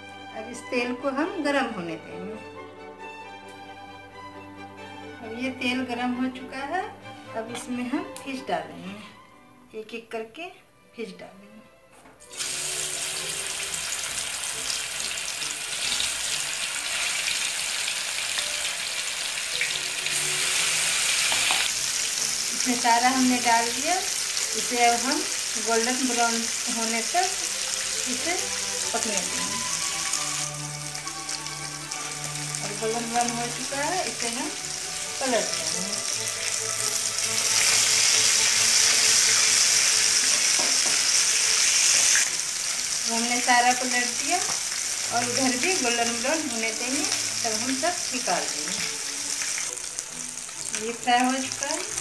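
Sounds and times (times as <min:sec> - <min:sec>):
fish sizzling in hot oil: 0:12.3 - 0:52.0.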